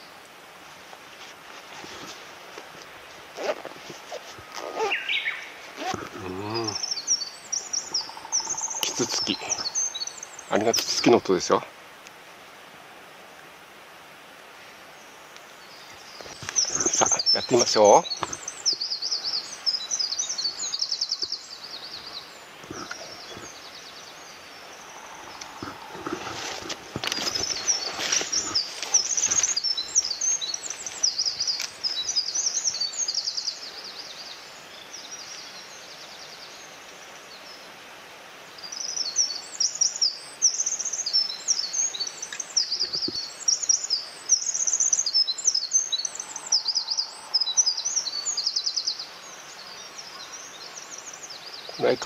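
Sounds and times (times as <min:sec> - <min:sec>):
rustling undergrowth: 0:00.0 - 0:34.1
songbird singing: 0:01.8 - 0:12.2, 0:14.5 - 0:52.0.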